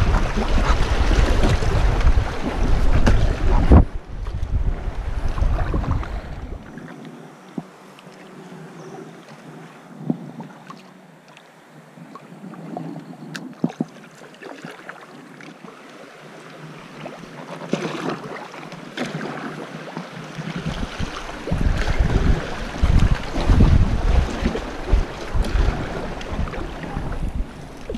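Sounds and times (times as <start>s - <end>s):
wind buffeting microphone: 0.0s - 7.8s, 9.9s - 10.6s, 20.4s - 27.9s
paddle strokes: 0.0s - 27.9s
water splashing and rushing: 0.0s - 27.9s.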